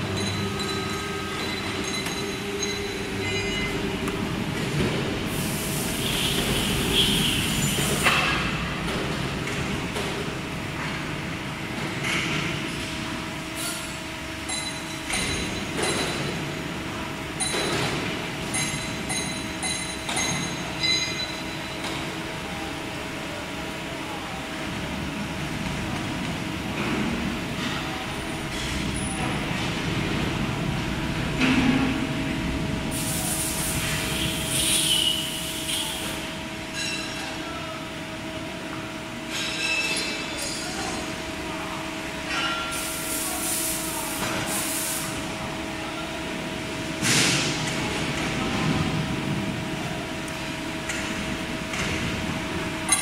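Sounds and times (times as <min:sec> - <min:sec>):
metallic clinks: 0:00.2 - 0:03.8, 0:18.5 - 0:21.8.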